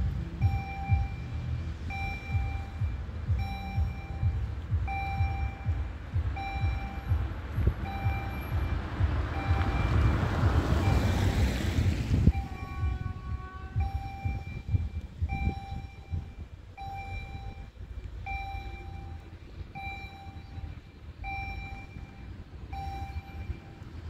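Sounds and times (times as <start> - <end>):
wind buffeting microphone: 0.0 - 24.0
electronic warning beep: 0.4 - 24.0
car passing by: 7.4 - 13.0.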